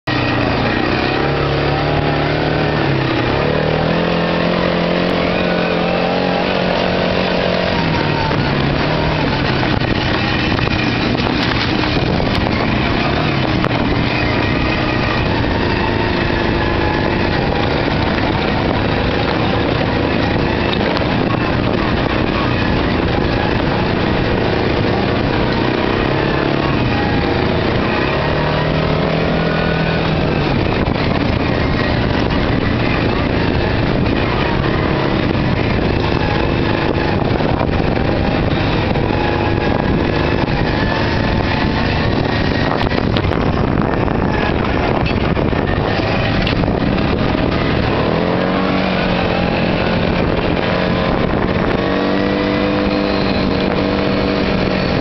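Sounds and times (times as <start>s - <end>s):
atv engine running: 0.0s - 55.0s
steady noisy rush: 0.0s - 55.0s.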